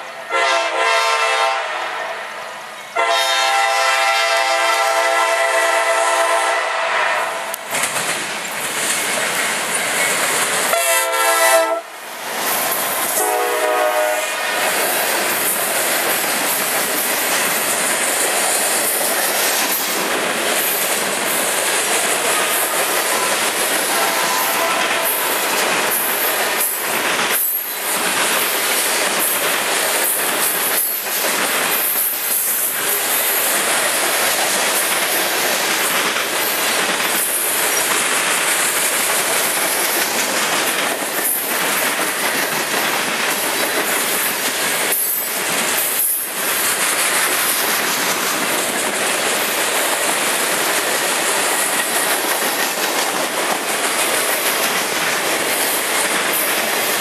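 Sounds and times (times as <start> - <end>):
freight train wheels rumbling: 0.0 - 57.0.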